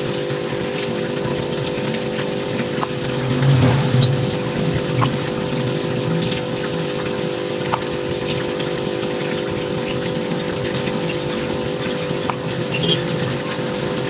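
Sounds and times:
steady hum: 0:00.0 - 0:14.0
rushing noise: 0:02.9 - 0:06.6, 0:11.1 - 0:14.0.

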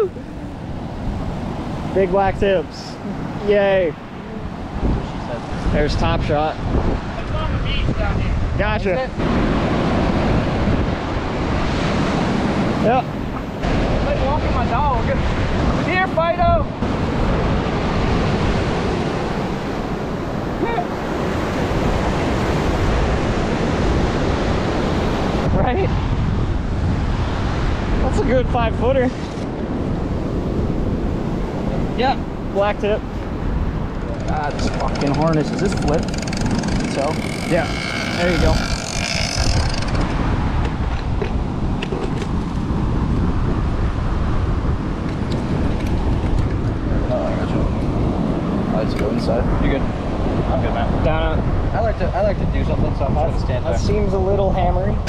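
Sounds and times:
surf washing up beach: 0:00.0 - 0:55.0
wind buffeting microphone: 0:00.0 - 0:55.0
person calling out: 0:20.6 - 0:21.0.

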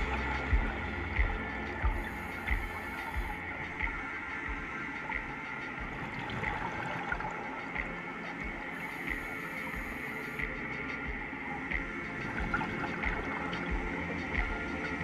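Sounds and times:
underwater water noise: 0:00.0 - 0:15.0.

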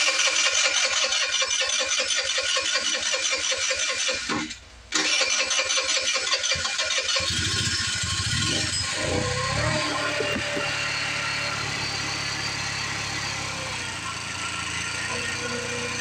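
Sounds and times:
scooter engine running: 0:00.0 - 0:04.2, 0:05.0 - 0:16.0
electric starter cranking engine: 0:00.0 - 0:16.0.

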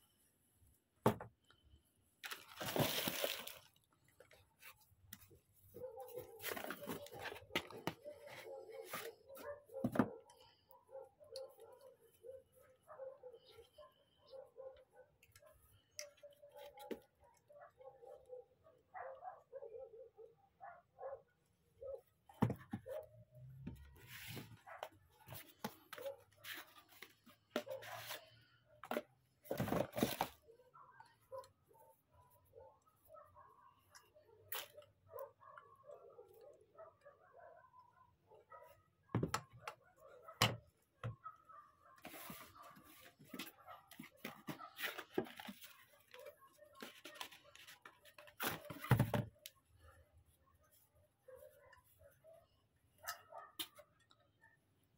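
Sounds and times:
cardboard box and bag rustling: 0:02.2 - 0:03.7, 0:29.5 - 0:30.4
cardboard and pouch rustling: 0:04.6 - 0:10.0, 0:28.9 - 0:30.4.

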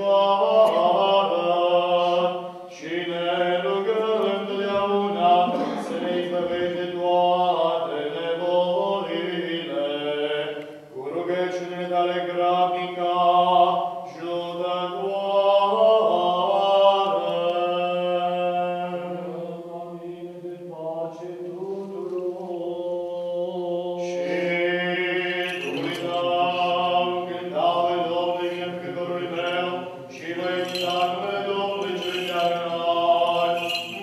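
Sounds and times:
solo voice chanting: 0:00.0 - 0:34.0
singer breathing: 0:02.4 - 0:02.7.

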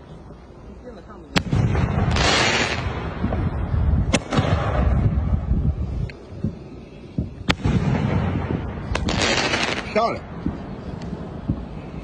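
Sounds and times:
fireworks hissing: 0:00.0 - 0:12.0
firework bang: 0:01.3 - 0:05.7, 0:06.4 - 0:12.0
low rumble: 0:02.8 - 0:09.2.

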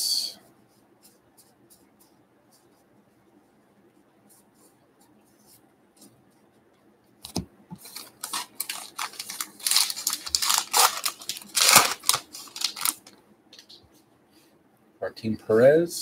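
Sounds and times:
wrapper and cards rustling: 0:07.3 - 0:13.2.

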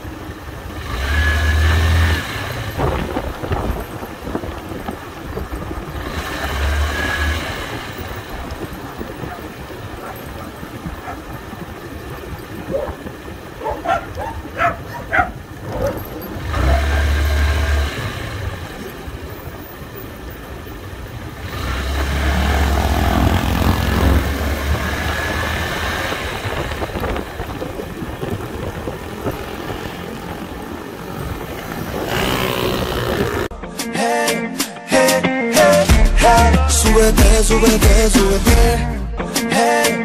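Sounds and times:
motorcycle engine: 0:00.0 - 0:33.6
wind rumbling on microphone: 0:02.4 - 0:33.5
dog barking: 0:09.2 - 0:11.3, 0:12.7 - 0:13.0, 0:13.6 - 0:17.2.

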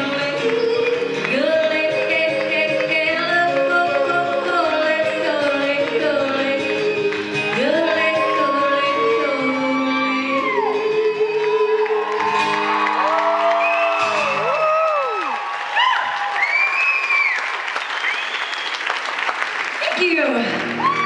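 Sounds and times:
woman yodeling: 0:00.0 - 0:12.3.

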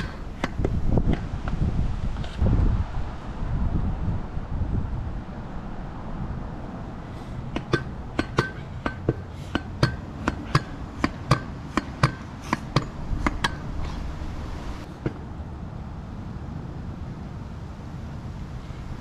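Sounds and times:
wind rumble on microphone: 0:00.0 - 0:08.8, 0:12.3 - 0:19.0
pogo stick metallic clacks: 0:07.5 - 0:14.0.

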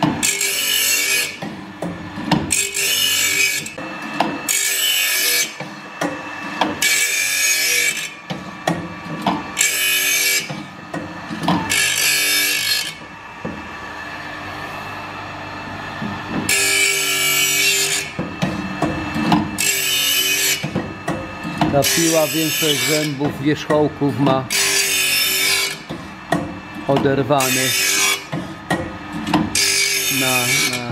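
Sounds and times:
steady motor hum: 0:00.0 - 0:30.9
grinding wheel hissing on saw blade: 0:21.8 - 0:23.7, 0:26.8 - 0:28.3, 0:29.6 - 0:30.9.

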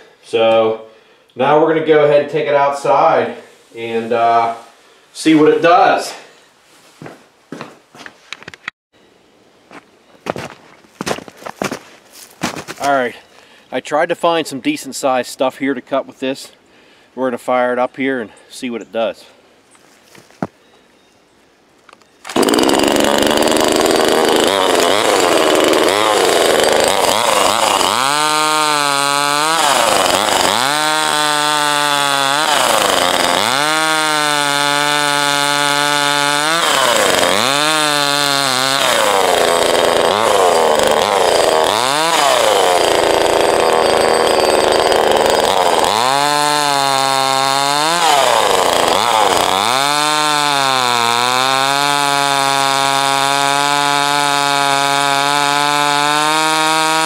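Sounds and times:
chainsaw cutting log: 0:11.0 - 0:13.0, 0:22.2 - 0:57.0.

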